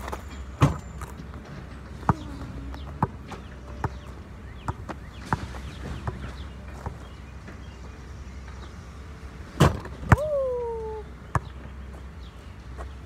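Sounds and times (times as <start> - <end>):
basketball hitting backboard and rim: 0.6 - 0.9, 9.6 - 10.2.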